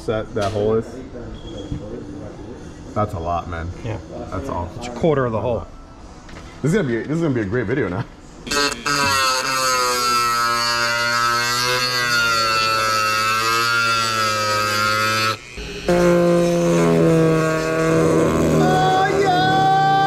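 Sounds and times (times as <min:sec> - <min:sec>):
rotary tool grinding whine: 0:08.4 - 0:20.0.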